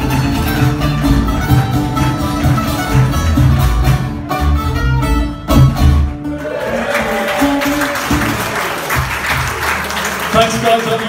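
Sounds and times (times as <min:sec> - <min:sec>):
folk band chords: 0:00.0 - 0:11.0
audience applause: 0:06.3 - 0:11.0.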